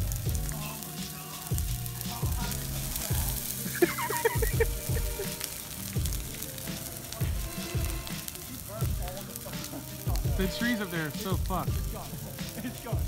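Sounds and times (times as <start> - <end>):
bonfire crackling and popping: 0.0 - 13.0.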